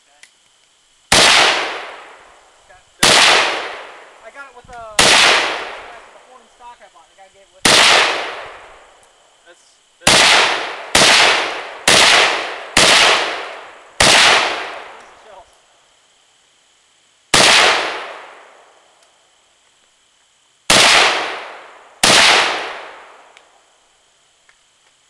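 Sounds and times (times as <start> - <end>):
rifle shots with echo: 1.1 - 2.3, 3.0 - 4.2, 5.0 - 6.2, 7.6 - 8.8, 10.0 - 15.0, 17.3 - 18.7, 20.7 - 23.3.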